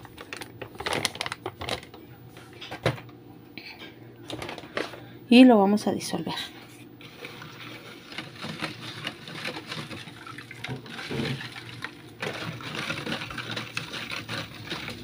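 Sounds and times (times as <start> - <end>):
plastic spoon stirring in tub: 7.0 - 15.0.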